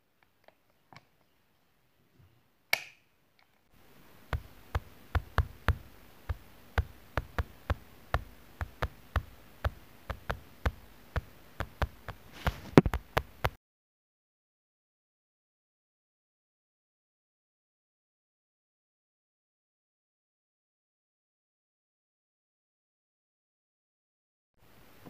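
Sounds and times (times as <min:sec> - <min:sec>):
faint hiss: 0:03.7 - 0:13.6, 0:24.6 - 0:25.0
kitten claws tapping on tile floor: 0:04.3 - 0:13.6.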